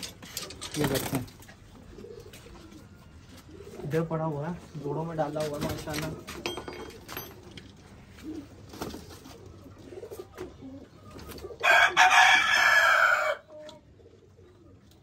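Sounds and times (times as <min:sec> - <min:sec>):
faint pigeon cooing: 0:00.0 - 0:15.0
rooster crowing: 0:11.6 - 0:13.5.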